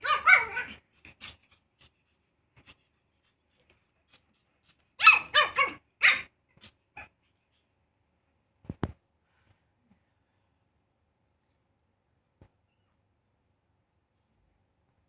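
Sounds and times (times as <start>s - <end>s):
puppy barking in high yips: 0.0s - 0.8s, 5.0s - 6.3s.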